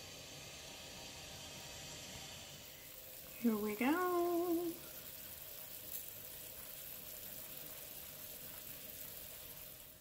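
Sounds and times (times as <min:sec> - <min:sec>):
thin steady hum: 0:00.0 - 0:05.3
soup simmering hiss: 0:00.0 - 0:10.0.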